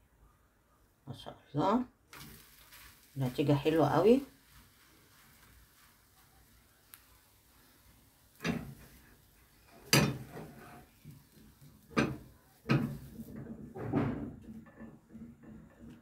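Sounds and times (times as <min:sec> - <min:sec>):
frying pan knocking on stove grates: 0:08.3 - 0:16.0.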